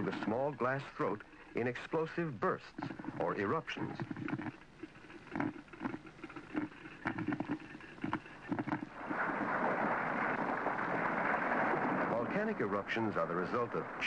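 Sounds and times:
percolator gurgling: 0.0 - 14.0
steady rushing noise: 8.8 - 14.0.

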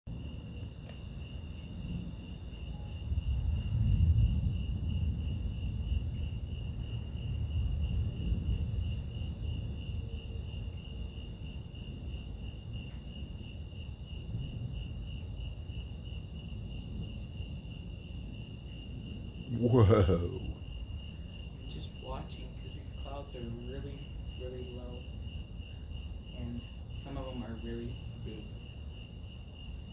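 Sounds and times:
crickets chirring: 0.1 - 29.9
low rumble: 2.8 - 9.8.

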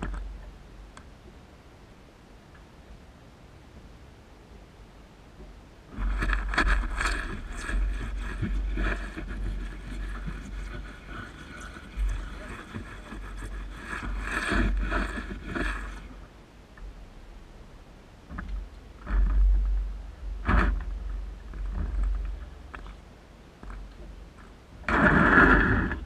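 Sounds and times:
wiper blades scraping mud on glass: 5.9 - 16.2
wiper motor humming: 5.9 - 16.3.

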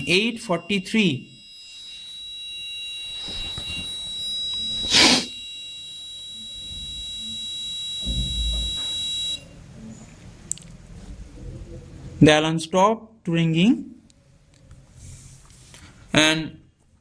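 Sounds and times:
alarm clock buzzer ringing: 0.0 - 9.5
low thump: 8.0 - 8.9.

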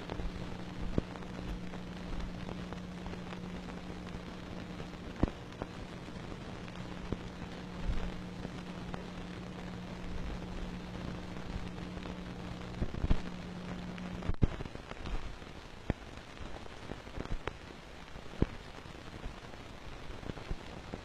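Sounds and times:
low hum: 0.0 - 14.5
clicks and pops: 0.0 - 15.2
film soundtrack hiss and crackle: 0.0 - 21.0.

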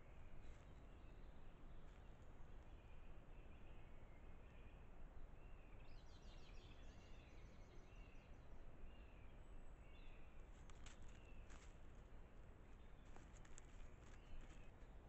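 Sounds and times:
birds chirping: 5.4 - 14.8
footsteps in dry leaves: 13.0 - 14.7.

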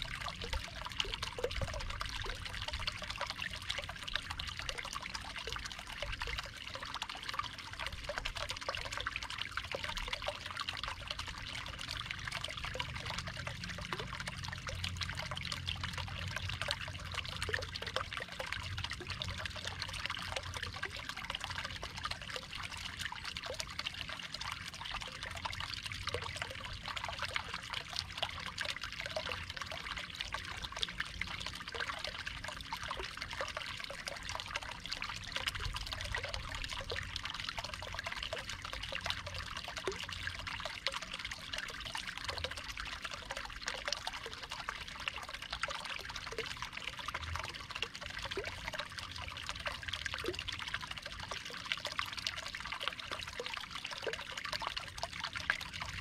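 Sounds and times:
water trickling into pond: 0.0 - 56.0.

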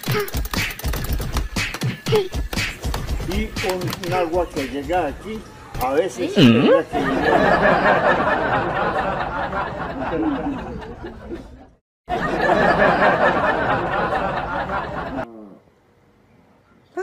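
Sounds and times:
audience laughter: 6.8 - 15.3.

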